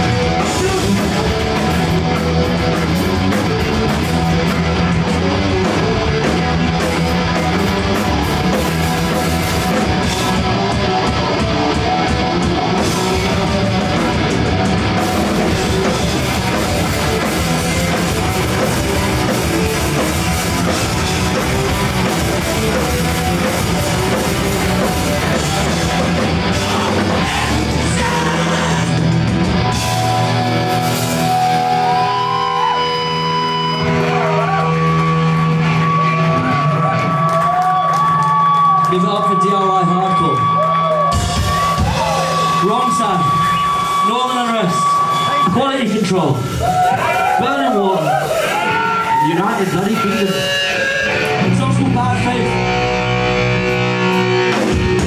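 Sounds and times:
bass: 0:00.0 - 0:55.0
distorted electric guitars: 0:00.0 - 0:55.0
drums: 0:00.0 - 0:55.0
shouted vocals: 0:26.3 - 0:30.6, 0:31.2 - 0:51.6.

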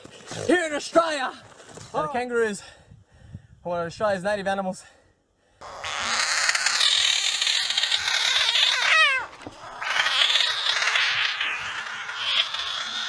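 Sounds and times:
frog screaming: 0:05.6 - 0:13.0.

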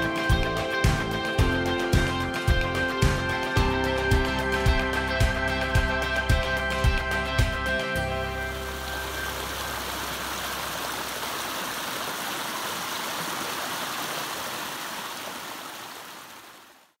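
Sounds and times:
stream rushing over rocks: 0:08.5 - 0:17.0.

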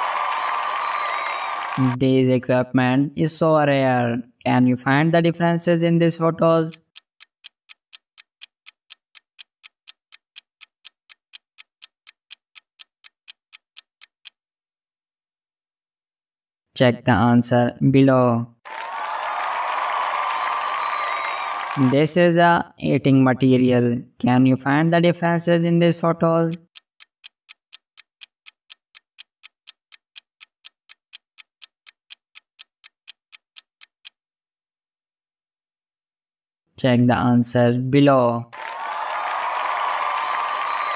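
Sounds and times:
timer ticking: 0:04.4 - 0:14.4, 0:24.7 - 0:34.2.

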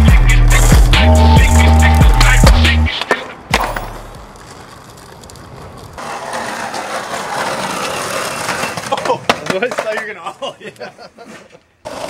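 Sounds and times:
skateboard wheels rolling on pavement: 0:00.0 - 0:12.0
skateboard landing clack: 0:02.4 - 0:06.8
outdoor background noise: 0:02.8 - 0:12.0.

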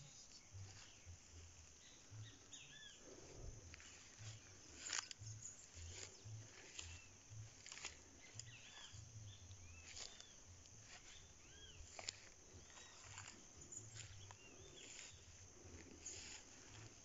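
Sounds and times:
bird calling: 0:00.0 - 0:15.2
footsteps scuffing: 0:03.8 - 0:17.0.

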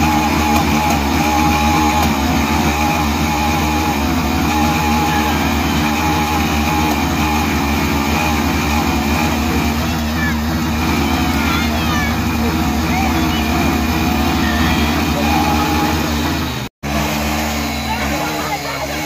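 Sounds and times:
dirt bike engine running: 0:00.0 - 0:19.0.

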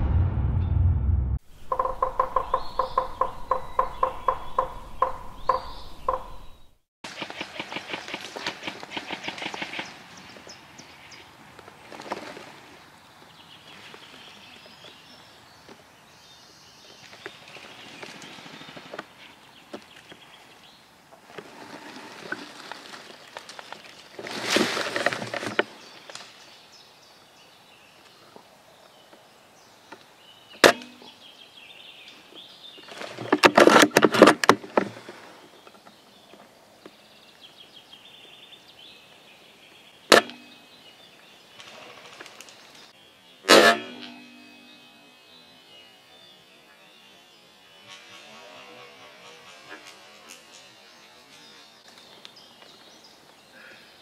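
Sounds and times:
sharp crack: 0:00.0 - 0:01.9
dry leaves crunching underfoot: 0:21.2 - 0:26.4.

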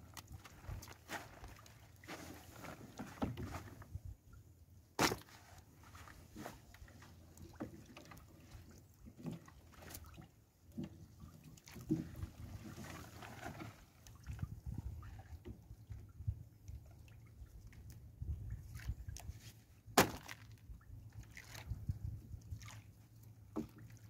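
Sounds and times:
net knocking and rustling on hull: 0:00.0 - 0:04.1, 0:05.0 - 0:15.6, 0:18.8 - 0:22.7, 0:23.4 - 0:24.0.

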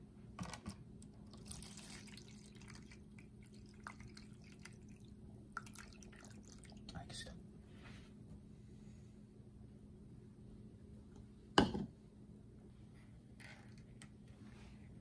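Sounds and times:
water pouring into plastic tub: 0:01.2 - 0:06.9.

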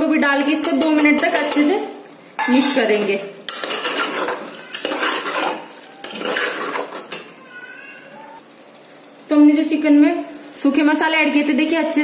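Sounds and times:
metal spoon scraping pot: 0:00.3 - 0:01.8, 0:02.4 - 0:07.3.

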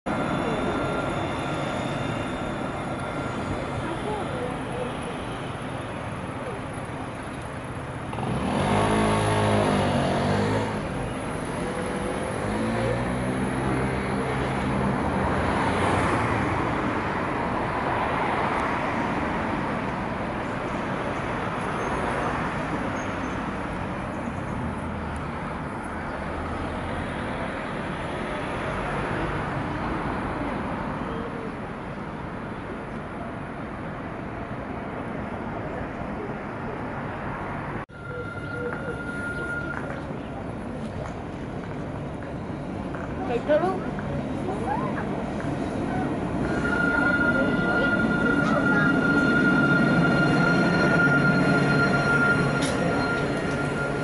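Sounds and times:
tram drive humming: 0:00.0 - 0:54.0
steel wheels rolling on rails: 0:38.0 - 0:54.0.

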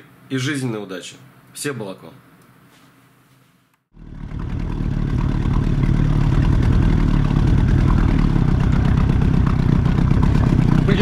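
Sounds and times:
outboard motor running: 0:03.9 - 0:11.0.

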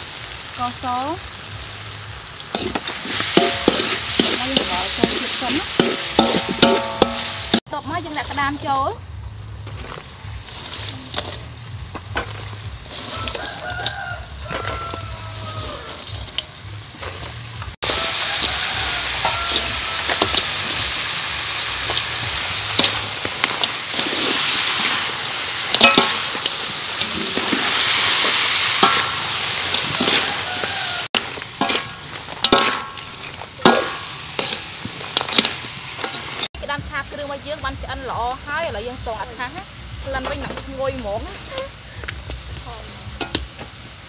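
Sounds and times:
crabs sizzling in a wok: 0:00.0 - 0:44.0
metal spoon scraping a wok: 0:02.4 - 0:08.8, 0:09.6 - 0:36.5, 0:41.3 - 0:42.1.

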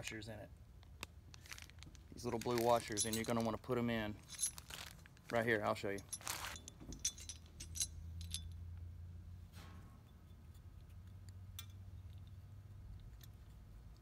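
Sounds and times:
rustle: 0:04.2 - 0:08.4.

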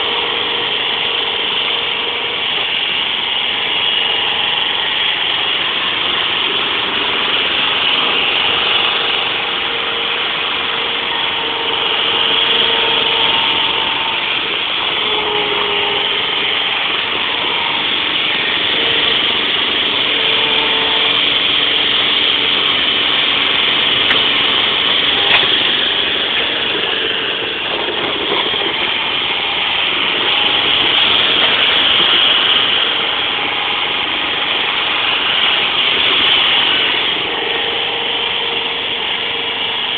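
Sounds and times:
faint steady tones: 0:00.0 - 0:39.9
forklift engine running: 0:00.0 - 0:39.9.

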